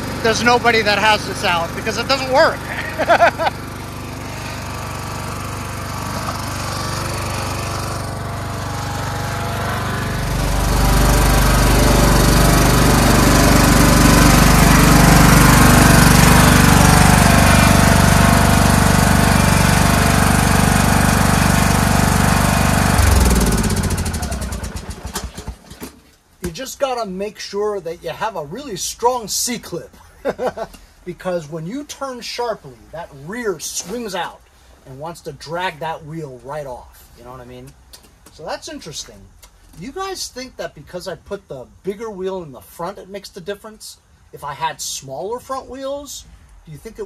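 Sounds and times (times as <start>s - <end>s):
lawn tractor engine running: 0.0s - 26.0s.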